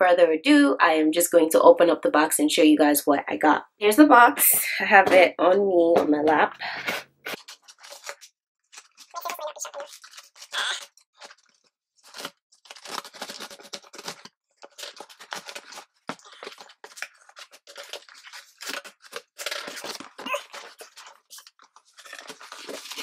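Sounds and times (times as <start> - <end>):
cardboard and paper rustling: 6.8 - 23.0
scissors cutting cardboard: 12.0 - 23.0.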